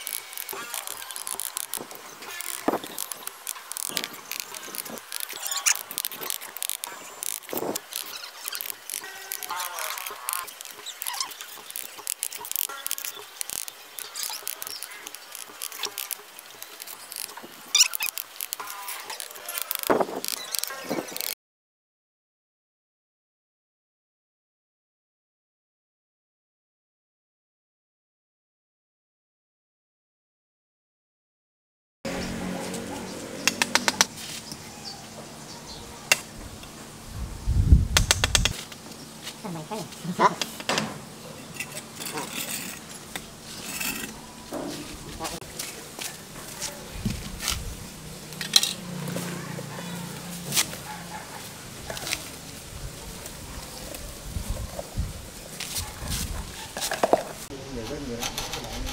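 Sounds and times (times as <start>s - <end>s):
trowel scraping mortar: 0.0s - 21.3s, 41.4s - 47.7s, 55.6s - 58.9s.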